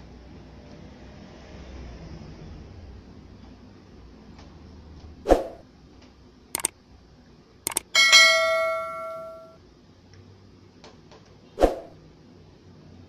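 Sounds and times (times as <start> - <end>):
metallic ring: 7.7 - 9.6.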